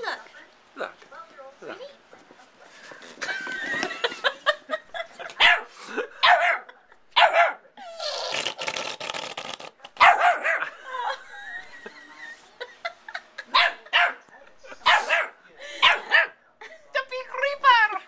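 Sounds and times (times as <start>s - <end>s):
puppy barking: 5.4s - 7.6s, 10.0s - 10.7s, 13.5s - 14.2s, 14.8s - 16.4s
whoopee cushion fart noise: 8.0s - 9.8s.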